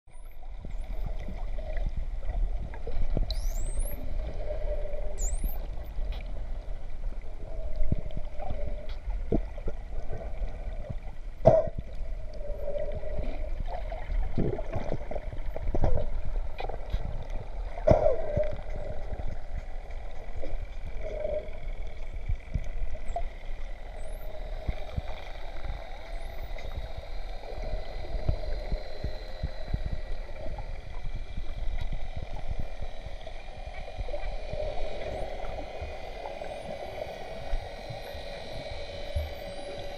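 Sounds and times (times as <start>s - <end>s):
underwater water gurgle: 0.1s - 39.9s
dolphin whistles: 3.3s - 5.6s.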